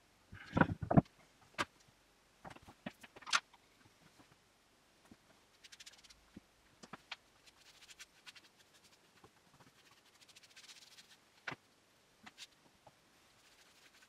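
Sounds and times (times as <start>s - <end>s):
soft rubbing sound: 5.5s - 6.3s, 7.0s - 11.3s, 12.2s - 14.0s.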